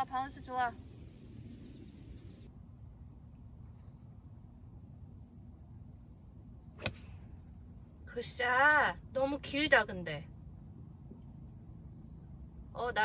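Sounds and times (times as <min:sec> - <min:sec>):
faint high hum: 0:00.0 - 0:13.0
golf club striking ball: 0:06.8 - 0:07.3.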